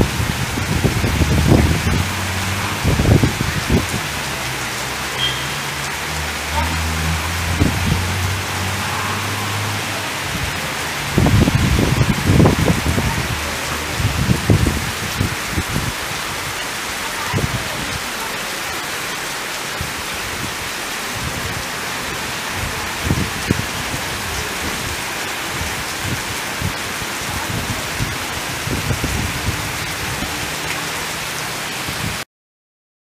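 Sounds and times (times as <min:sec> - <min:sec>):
heavy rain pouring: 0:00.0 - 0:32.3
low rumbles: 0:00.1 - 0:16.0.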